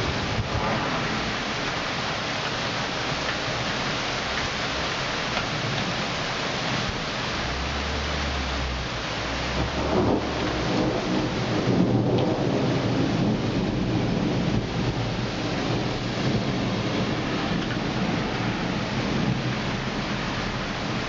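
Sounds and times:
thunder rumbling: 0.0s - 2.2s, 9.4s - 21.0s
rain falling: 0.0s - 21.0s.

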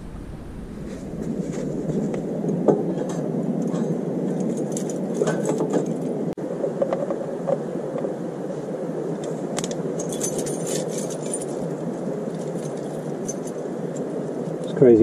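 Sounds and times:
low rushing noise: 0.0s - 5.1s
keys jingling: 4.3s - 6.1s, 10.0s - 13.6s.

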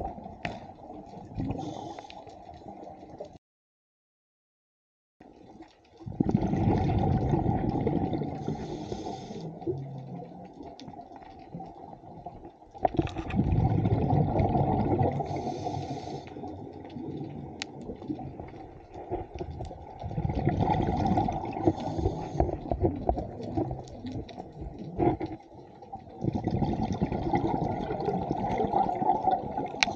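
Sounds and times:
underwater bubbling: 0.0s - 3.4s, 5.2s - 29.9s
water noise: 0.0s - 3.4s, 5.2s - 29.9s
diver breathing through regulator: 1.5s - 2.3s, 8.3s - 9.7s, 15.2s - 16.5s, 21.5s - 22.8s.

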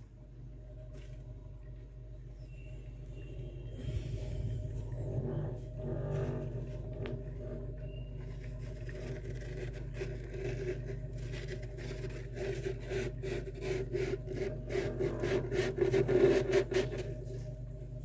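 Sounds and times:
steady low hum: 0.0s - 18.0s
hand scraping freezer frost: 3.8s - 17.5s.

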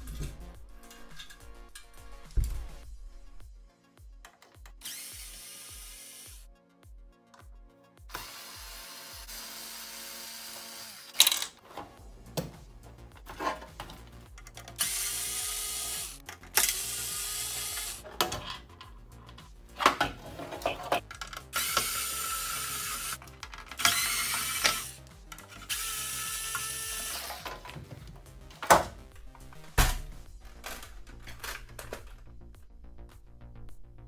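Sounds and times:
electric screwdriver whirring: 4.8s - 6.4s, 8.1s - 11.2s, 14.7s - 18.0s, 21.4s - 27.6s.

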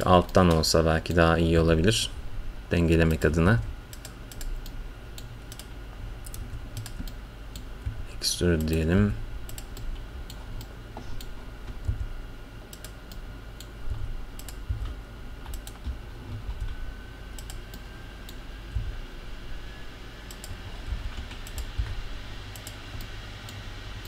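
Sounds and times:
steady low hum: 0.0s - 24.0s
keyboard keys clicking: 12.7s - 16.7s.

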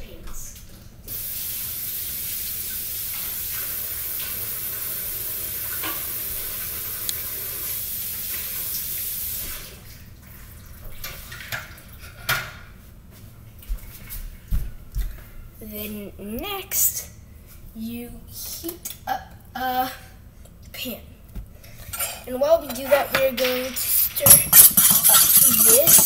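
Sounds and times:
water running from a tap: 1.0s - 11.8s, 23.7s - 26.0s.

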